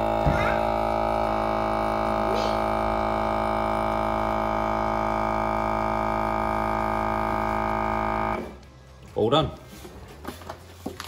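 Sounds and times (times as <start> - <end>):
vacuum sealer pump humming: 0.0 - 8.6.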